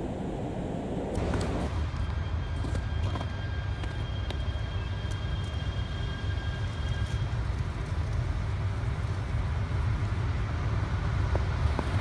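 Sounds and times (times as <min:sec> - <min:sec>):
high steady whine: 0:00.0 - 0:08.8
train rumbling on tracks: 0:00.0 - 0:12.0.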